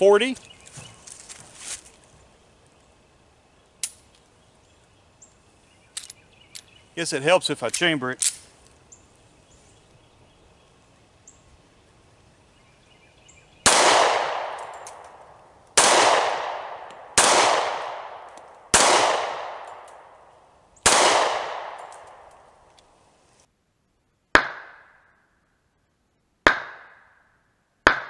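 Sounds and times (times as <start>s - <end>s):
pistol shots echoing: 13.6s - 15.2s, 15.8s - 20.1s, 20.8s - 22.3s.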